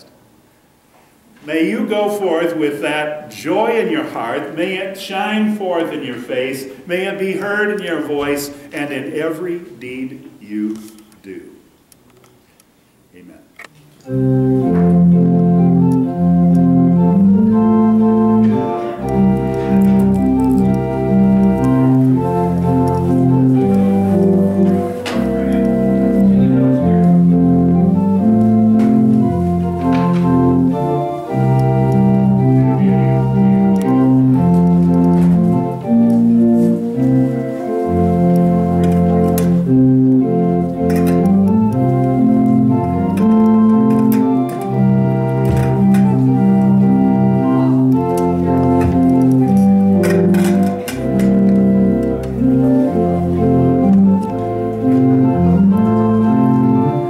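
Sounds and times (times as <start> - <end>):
organ playing chords: 1.2 - 11.8, 13.0 - 57.0.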